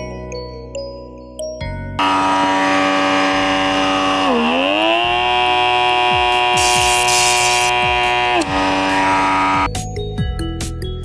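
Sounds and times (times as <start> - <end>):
pore vacuum buzzing: 2.0 - 9.7.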